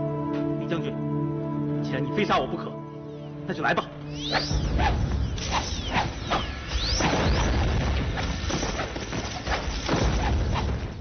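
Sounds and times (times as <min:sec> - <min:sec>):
clattering knocks and swishes: 0:05.4 - 0:11.0.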